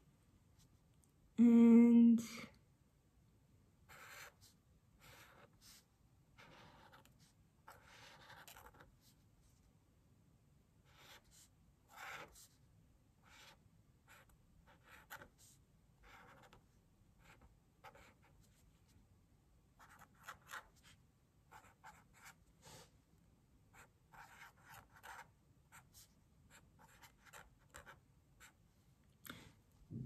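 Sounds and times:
marker drawing on paper: 3.9s - 9.2s, 10.9s - 12.6s, 13.2s - 16.6s, 17.2s - 18.5s, 19.8s - 22.8s, 23.8s - 28.6s.

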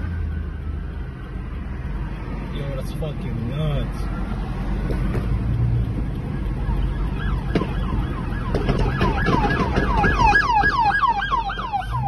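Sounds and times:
emergency siren yelp: 0.0s - 1.8s, 5.9s - 12.0s
car road noise rumble: 0.0s - 12.0s.

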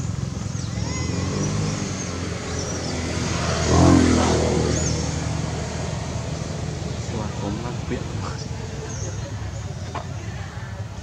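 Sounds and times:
motor vehicle passing: 0.0s - 11.0s.

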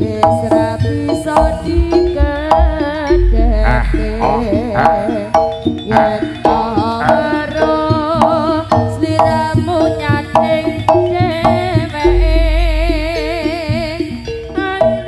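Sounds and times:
gamelan music: 0.0s - 15.0s
hand drum strokes: 0.0s - 15.0s
wavering vibrato melody: 0.0s - 15.0s
deep low drum stroke: 1.3s - 5.1s.

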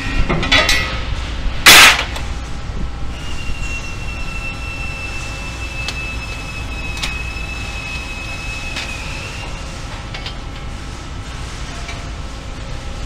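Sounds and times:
factory machinery noise: 0.0s - 13.0s
high steady whine: 0.0s - 13.0s.

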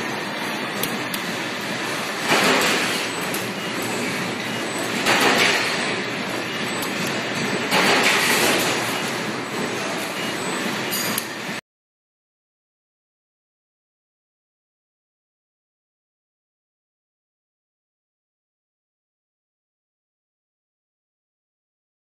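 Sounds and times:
press brake bending sheet metal: 0.1s - 11.5s.

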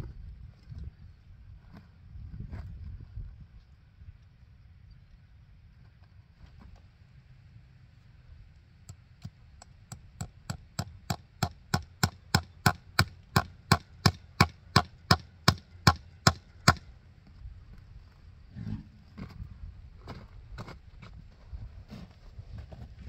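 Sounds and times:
hammer striking fence staple: 9.2s - 16.9s.

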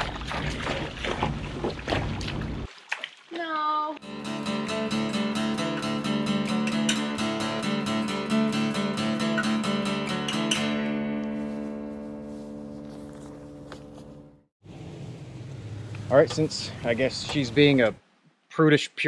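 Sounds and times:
strummed acoustic guitar: 4.0s - 14.2s.

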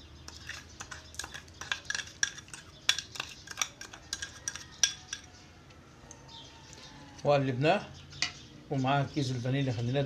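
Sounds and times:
metal spoon clinking against bowls: 0.2s - 5.4s.

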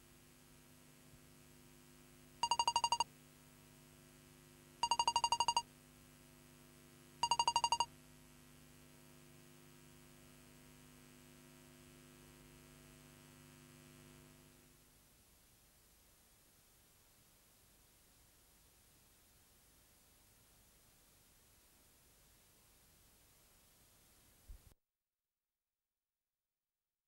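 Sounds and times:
faint steady hum: 0.0s - 24.6s
high electronic beeps: 2.4s - 3.0s, 4.8s - 5.6s, 7.2s - 7.9s.

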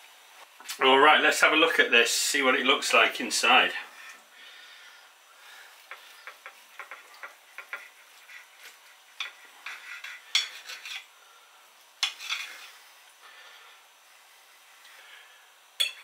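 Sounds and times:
cutlery scraping on plate: 6.2s - 11.1s, 12.0s - 12.8s
metal clinks on plate: 15.8s - 16.0s.

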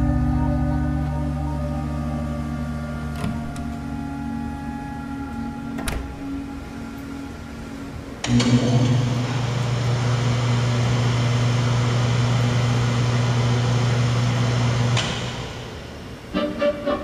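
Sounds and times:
music: 0.0s - 8.5s, 16.3s - 17.0s
electrical hum: 0.0s - 17.0s.

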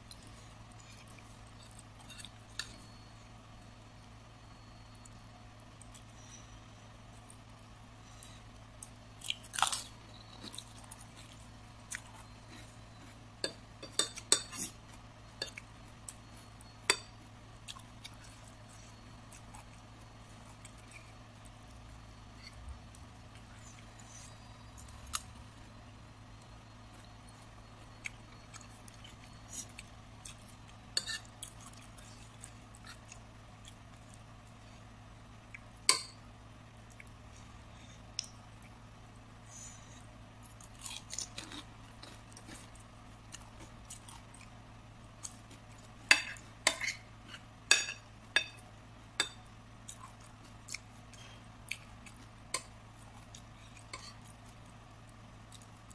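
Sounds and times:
low steady hum: 0.0s - 55.9s
chewing: 4.9s - 36.0s, 36.7s - 38.8s, 39.8s - 47.5s, 49.2s - 55.9s.

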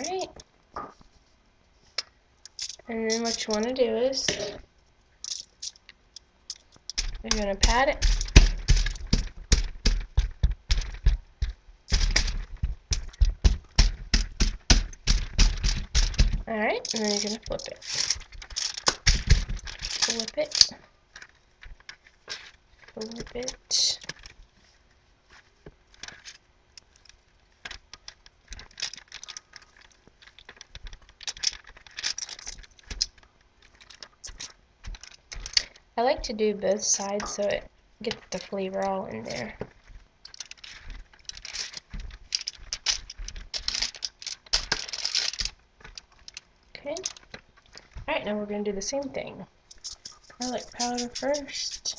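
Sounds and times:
aluminium foil crinkling: 2.4s - 4.6s, 5.2s - 48.1s, 49.6s - 51.9s
hand patting raw chicken: 7.0s - 16.5s.

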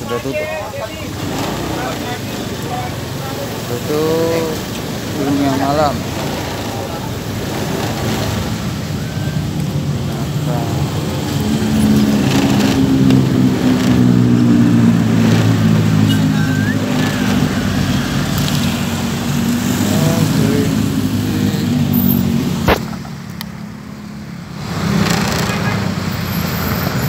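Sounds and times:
voices in background: 0.0s - 8.2s.

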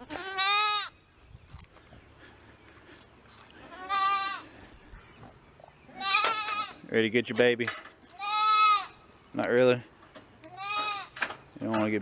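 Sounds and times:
goat bleating: 0.0s - 1.0s, 3.6s - 4.5s, 5.9s - 6.9s, 8.1s - 9.1s, 10.4s - 11.2s.

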